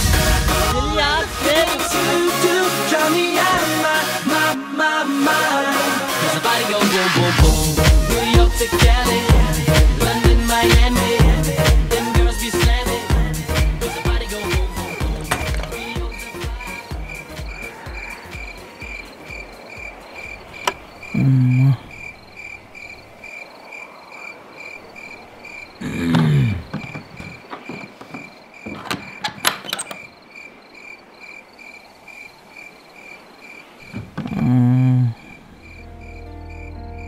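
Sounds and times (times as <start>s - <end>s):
crickets chirping: 0.0s - 9.3s, 10.0s - 37.0s
man making low vocal sounds: 21.1s - 22.0s, 25.8s - 26.7s, 34.1s - 35.5s.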